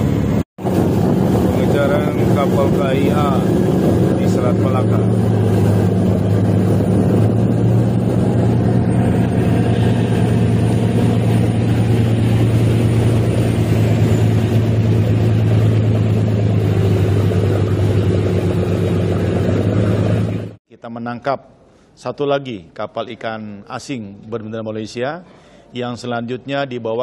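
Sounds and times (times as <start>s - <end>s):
boat engine running: 0.0s - 20.6s
water splashing against hull: 0.6s - 20.6s.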